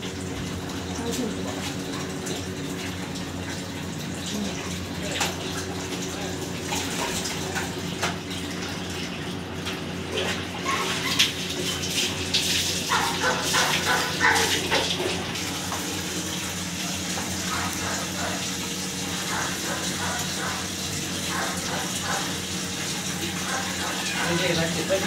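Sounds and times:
water splashing on dog: 0:00.0 - 0:25.0
dog barking: 0:12.9 - 0:14.8, 0:19.3 - 0:20.7.

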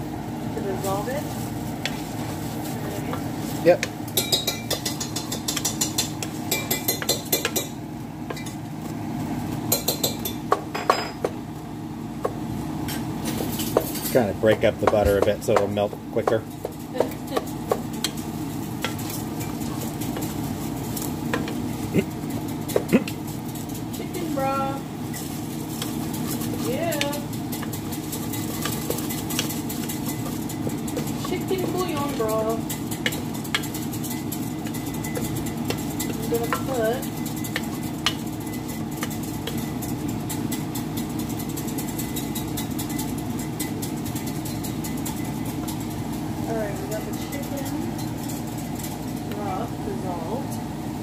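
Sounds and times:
butter sizzling: 0:00.0 - 0:51.0
steady low hum: 0:00.0 - 0:51.0
wooden spoon scraping a pot: 0:16.3 - 0:49.5.

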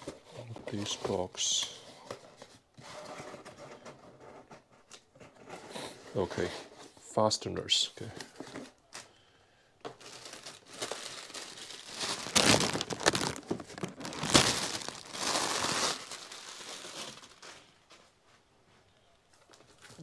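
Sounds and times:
cardboard boxes scraping and rustling: 0:00.0 - 0:07.0.

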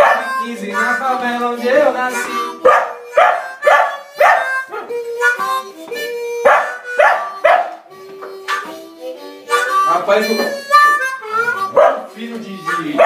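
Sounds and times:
blues harmonica: 0:00.0 - 0:13.0
sharp rhythmic beats: 0:00.0 - 0:13.0
dog howling: 0:11.7 - 0:12.1.

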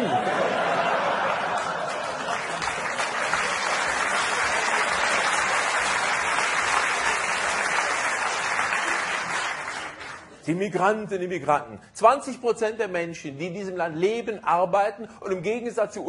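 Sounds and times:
audience applauding: 0:00.7 - 0:10.4.

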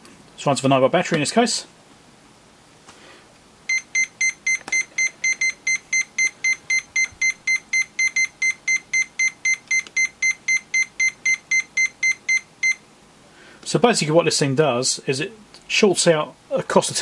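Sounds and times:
multimeter continuity beeps: 0:03.7 - 0:12.8.

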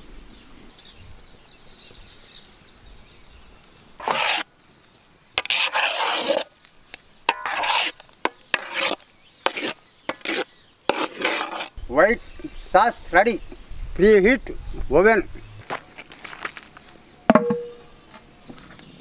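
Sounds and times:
utensil scraping through sauce: 0:04.0 - 0:04.5, 0:05.4 - 0:06.6, 0:07.3 - 0:11.8.

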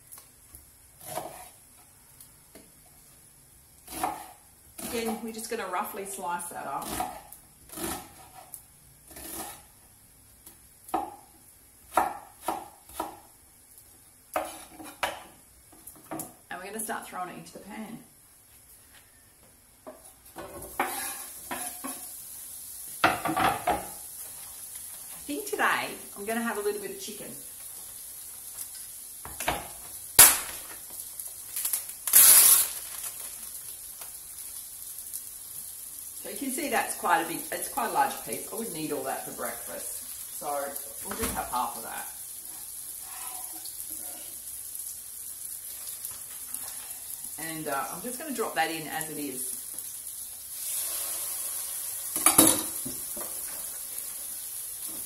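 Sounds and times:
vegetables sizzling in a pan: 0:00.0 - 0:55.0
plastic film tearing: 0:31.4 - 0:34.2.

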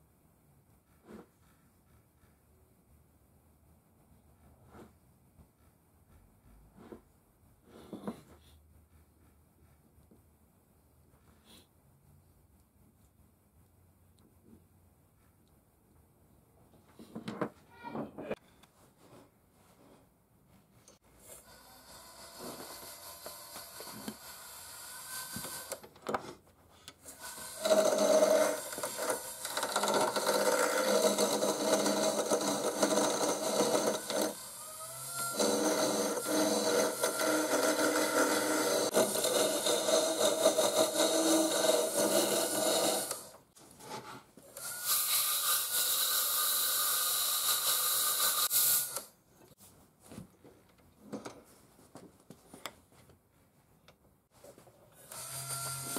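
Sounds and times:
wood lathe turning tool scraping: 0:21.3 - 0:25.8, 0:27.1 - 0:43.4.

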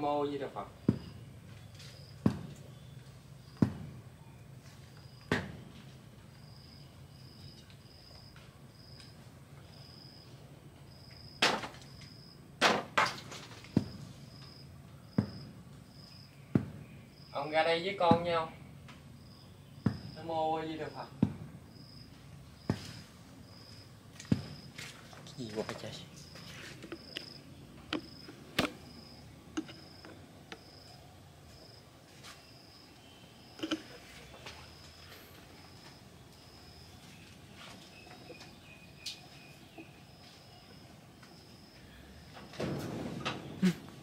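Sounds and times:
insect chirping in pulses: 0:04.9 - 0:05.3, 0:06.3 - 0:12.5, 0:13.7 - 0:37.2, 0:37.9 - 0:44.0
sharp clicks and knocks: 0:26.8 - 0:28.8, 0:29.5 - 0:30.8, 0:33.6 - 0:34.0.

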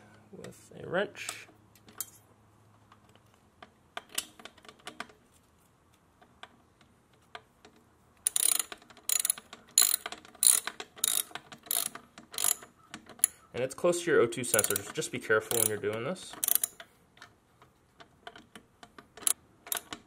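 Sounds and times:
socket ratchet clicking: 0:08.2 - 0:13.5, 0:14.5 - 0:16.9, 0:18.3 - 0:20.0.

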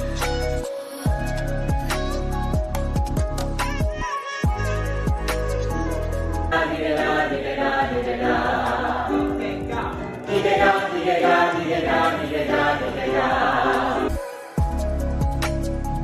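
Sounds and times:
group singing vocal warm-up: 0:06.4 - 0:14.6.

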